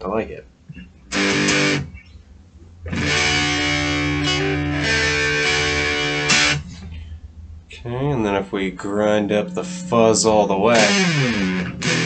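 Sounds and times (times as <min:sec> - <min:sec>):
steady low hum: 0:00.0 - 0:12.0
fuzz electric guitar chord: 0:01.1 - 0:01.9, 0:02.9 - 0:06.6, 0:08.4 - 0:12.0.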